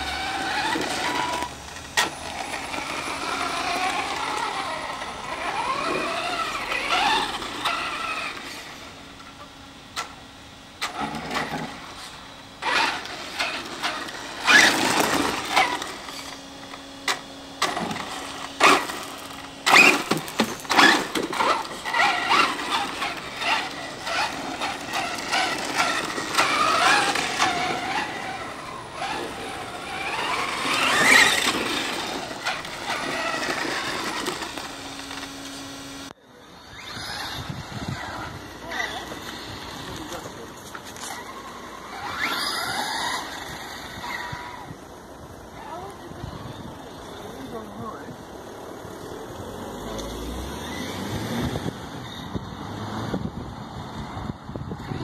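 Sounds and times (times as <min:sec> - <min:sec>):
electric motor whining: 0:00.0 - 0:55.0
tyres crackling over gravel: 0:11.1 - 0:35.8.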